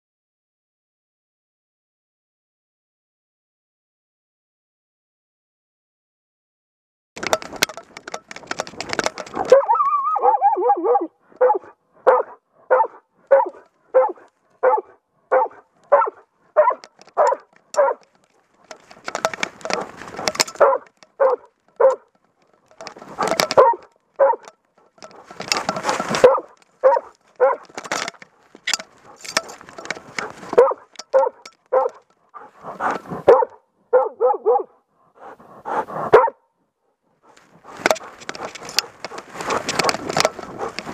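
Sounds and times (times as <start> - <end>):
rustling through brush: 7.2 - 33.6, 37.2 - 40.9
dog barking: 9.4 - 18.1, 20.5 - 22.1, 23.2 - 24.5, 26.2 - 27.7, 30.5 - 32.6, 33.2 - 36.5.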